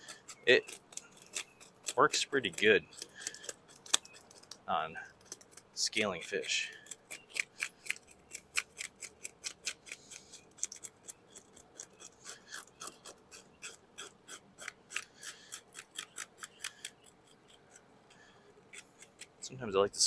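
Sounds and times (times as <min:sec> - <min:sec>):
knife scraping fish scales: 0:00.0 - 0:19.4.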